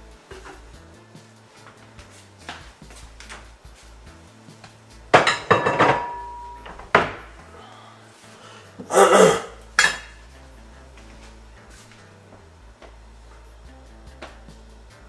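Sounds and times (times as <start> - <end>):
pots and dishes clattering: 0.3 - 0.7, 5.1 - 7.3, 9.8 - 10.2.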